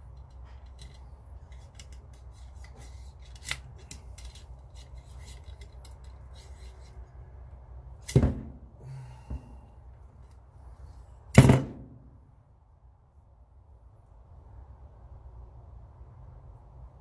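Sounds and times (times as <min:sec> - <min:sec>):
cleaning rod scraping in rifle bore: 0:00.2 - 0:07.1.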